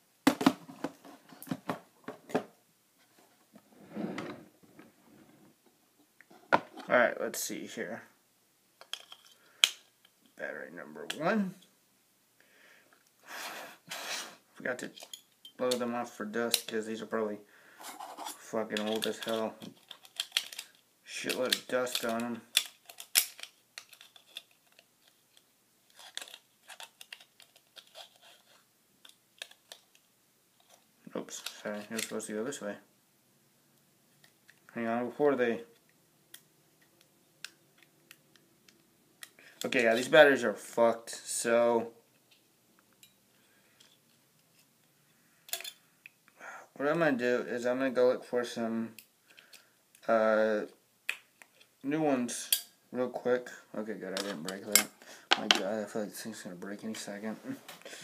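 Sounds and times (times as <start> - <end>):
soft rustle: 3.0 - 7.0, 56.0 - 58.0
batteries clicking and rattling: 18.7 - 30.0.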